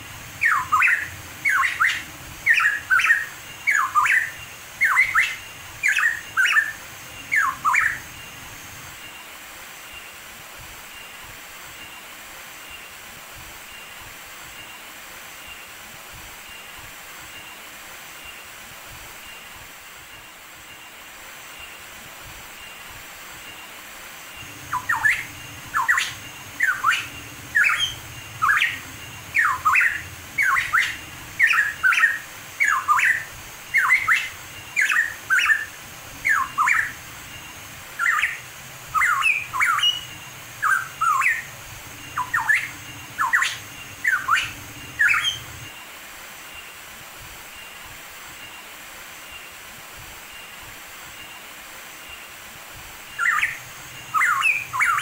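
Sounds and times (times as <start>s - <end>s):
steady hiss: 0.0s - 55.0s
bird singing whistled notes: 0.1s - 9.3s, 24.3s - 45.9s, 53.0s - 55.0s.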